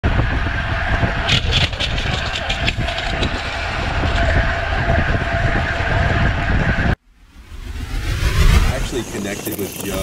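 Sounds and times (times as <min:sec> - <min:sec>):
wind buffeting microphone: 0:00.0 - 0:07.0.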